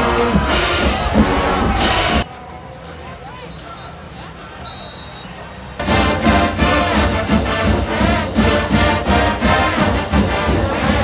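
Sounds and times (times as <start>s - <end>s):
brass band music: 0.0s - 2.3s, 5.8s - 11.0s
steady drum beat: 5.8s - 11.0s.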